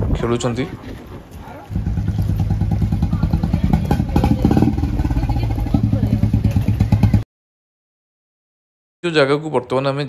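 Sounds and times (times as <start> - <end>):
motorcycle engine running: 1.7 - 7.2.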